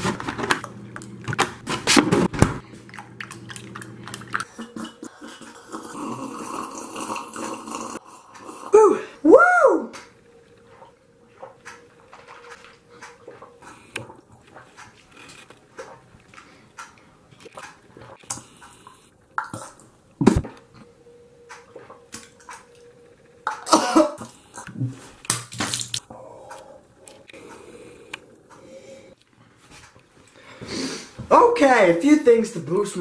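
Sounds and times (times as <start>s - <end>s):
person slurping coffee: 2.7s - 8.7s
person gagging and groaning: 4.6s - 9.9s
person coughing: 23.6s - 24.3s.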